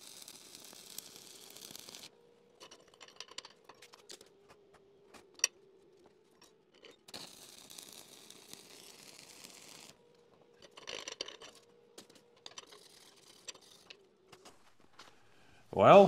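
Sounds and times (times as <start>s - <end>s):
steel plate scraping: 12.4s - 14.0s.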